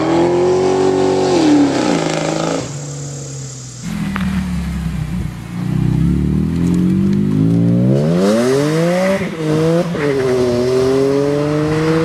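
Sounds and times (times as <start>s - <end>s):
car engine accelerating hard: 0.0s - 12.0s.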